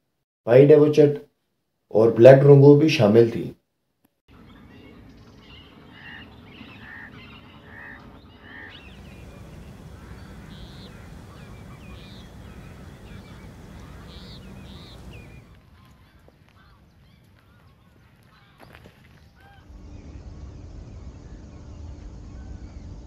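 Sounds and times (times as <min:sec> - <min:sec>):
geese honking: 0:04.3 - 0:19.7
low background hum: 0:04.4 - 0:23.0.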